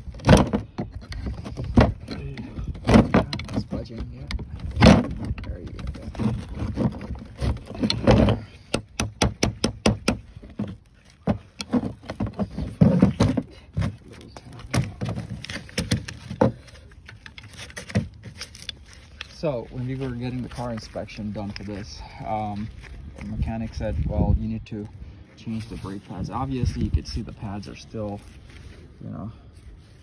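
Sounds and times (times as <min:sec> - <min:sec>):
heavy metal knocks: 0:08.1 - 0:10.3.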